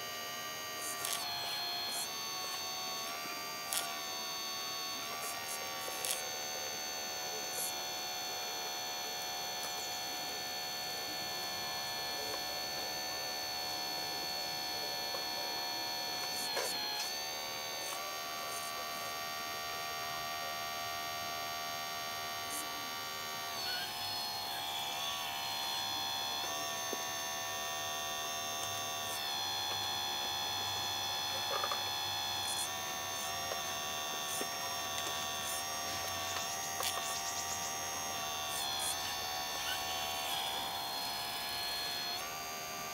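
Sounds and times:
hydraulic pump motor whining: 0.0s - 42.9s
small clicks: 0.8s - 1.3s, 3.7s - 4.0s, 5.2s - 6.2s, 33.2s - 37.6s.

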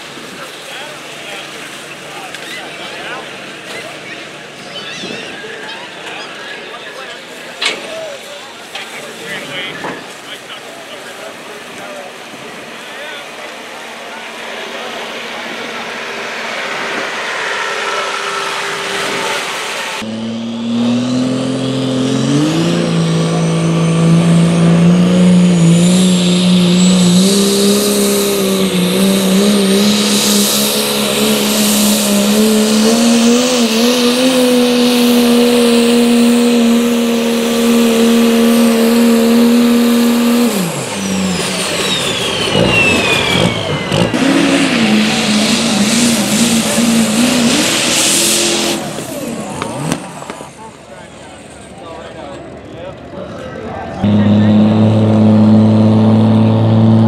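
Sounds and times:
diesel pickup engine revving: 0.0s - 57.0s
turbo whistle: 40.1s - 48.8s.

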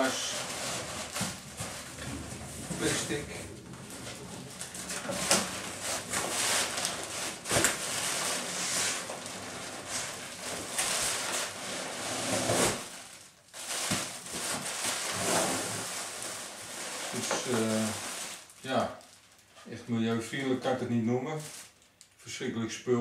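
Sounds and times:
plastic packaging crinkling: 0.0s - 19.6s, 20.3s - 22.2s.

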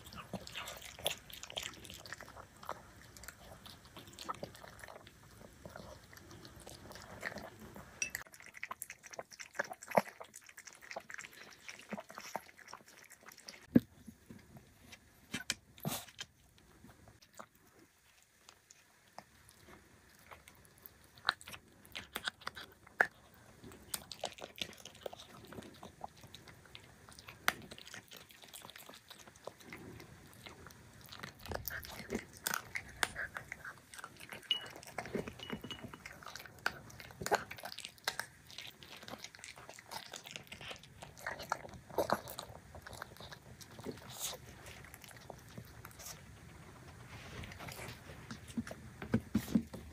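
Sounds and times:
dog chewing and smacking: 0.0s - 13.9s, 17.2s - 49.9s
dog licking ceramic bowl: 31.3s - 46.2s.

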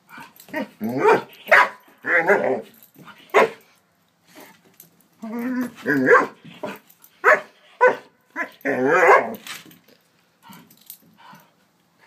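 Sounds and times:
dog barking: 1.0s - 1.8s, 7.2s - 8.1s.

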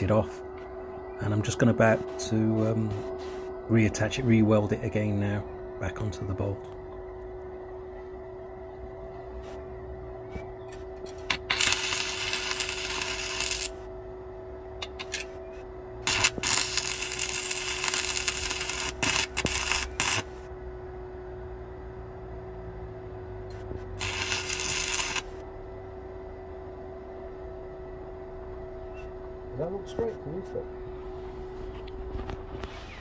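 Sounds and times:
steady hum: 0.0s - 33.0s
welding arc crackling: 11.1s - 13.9s, 16.0s - 20.5s, 23.5s - 25.4s.

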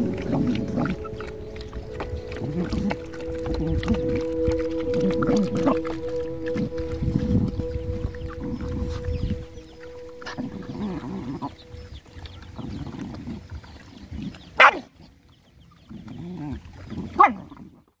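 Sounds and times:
dogs growling: 0.0s - 14.9s
dogs chewing and lapping: 0.0s - 18.0s
dog yelps: 14.6s - 14.9s, 17.2s - 17.4s.

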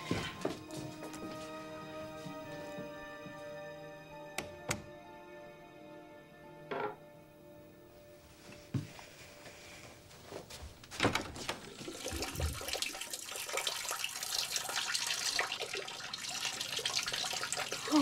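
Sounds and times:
urine splashing into toilet bowl: 11.6s - 17.9s.

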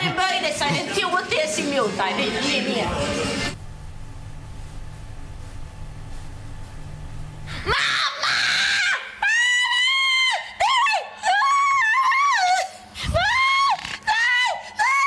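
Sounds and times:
person screaming: 7.6s - 10.6s.

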